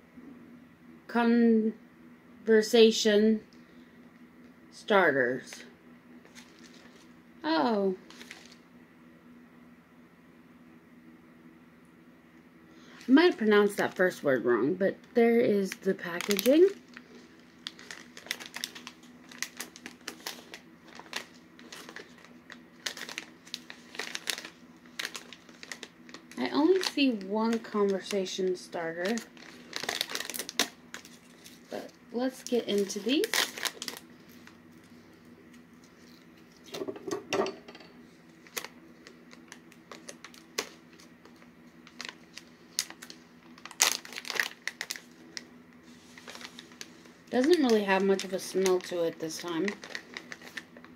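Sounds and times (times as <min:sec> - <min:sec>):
plastic pouch crinkling: 0:06.2 - 0:07.1, 0:08.0 - 0:08.6, 0:15.6 - 0:35.0, 0:38.3 - 0:50.9.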